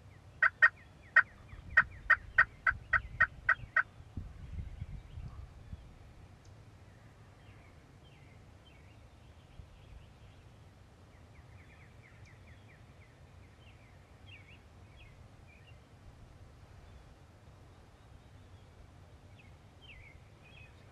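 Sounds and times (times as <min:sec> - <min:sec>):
songbird chirps: 0:00.0 - 0:20.9.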